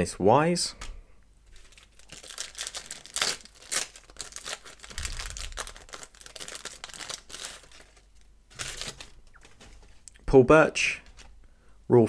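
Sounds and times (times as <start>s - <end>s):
card pack wrapper tearing: 1.6s - 9.9s.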